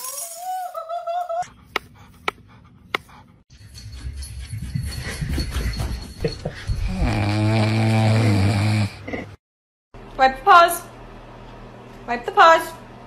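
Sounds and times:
puppy snoring: 0:06.8 - 0:09.2.

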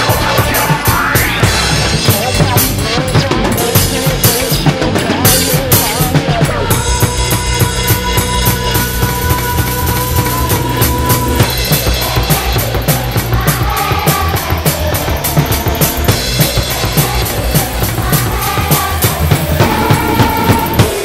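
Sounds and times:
backing track music: 0:00.0 - 0:21.0
drum kit played fast: 0:00.0 - 0:21.0.

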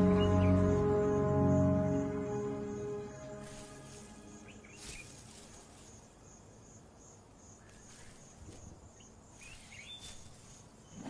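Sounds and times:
insects chirping: 0:00.0 - 0:11.0.

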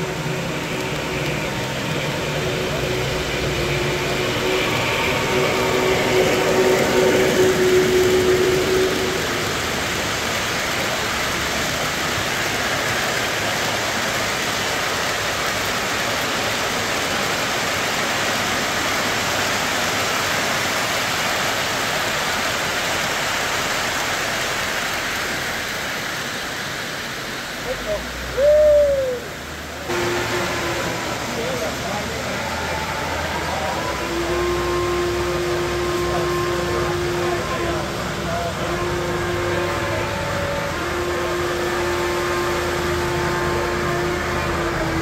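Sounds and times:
model train whistle: 0:00.0 - 0:16.4, 0:29.9 - 0:45.0.

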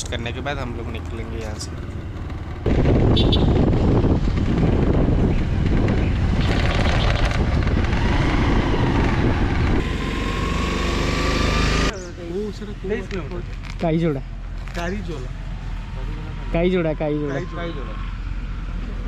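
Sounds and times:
motorcycle engine running: 0:00.0 - 0:09.9
wind noise on microphone: 0:02.6 - 0:09.9.

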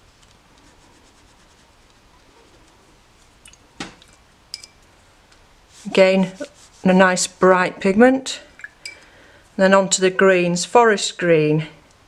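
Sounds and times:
brush rubbing on paper: 0:00.0 - 0:03.4, 0:05.6 - 0:07.5.

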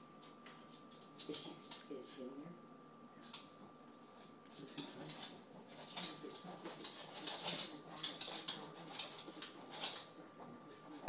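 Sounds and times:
dog scratching at floor: 0:03.2 - 0:11.0.

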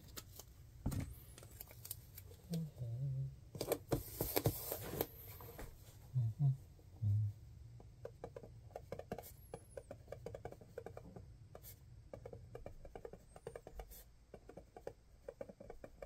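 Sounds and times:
paint marker scratching on paper: 0:08.2 - 0:16.0.

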